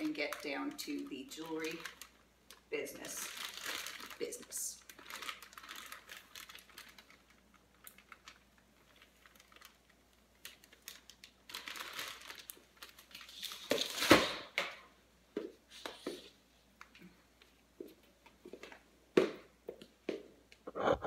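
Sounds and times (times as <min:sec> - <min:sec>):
plastic bag crinkling: 0:00.0 - 0:14.6.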